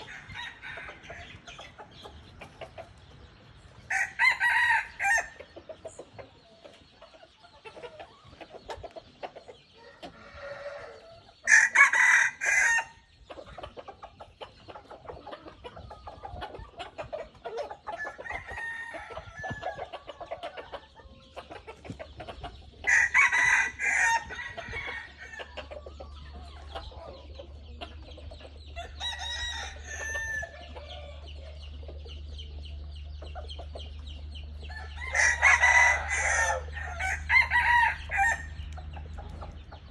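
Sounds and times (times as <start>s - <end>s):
roosters crowing: 0.0s - 1.8s, 3.8s - 5.6s, 9.8s - 13.1s, 17.8s - 20.9s, 22.8s - 25.8s, 28.6s - 31.6s, 34.5s - 39.9s.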